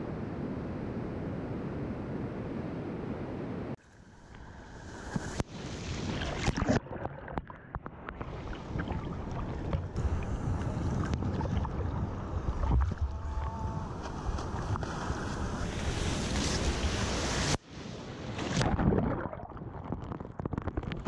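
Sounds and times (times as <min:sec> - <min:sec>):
water sloshing and splashing: 0:05.0 - 0:17.6
breaking waves: 0:08.1 - 0:19.4
wind on microphone: 0:08.2 - 0:17.6.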